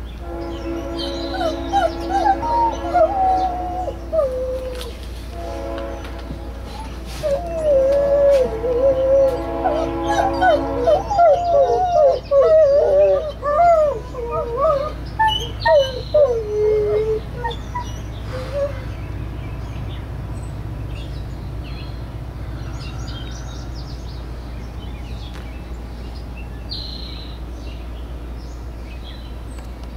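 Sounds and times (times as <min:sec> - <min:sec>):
dog howling: 0:01.2 - 0:04.9, 0:06.7 - 0:18.8.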